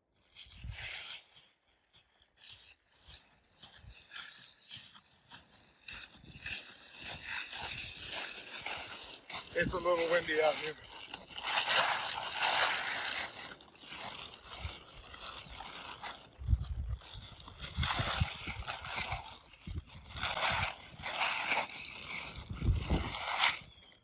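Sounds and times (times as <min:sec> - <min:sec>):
plastic tarp rustling and crackling: 0:00.0 - 0:24.0
wind rumbling on microphone: 0:00.4 - 0:01.1, 0:05.9 - 0:24.0.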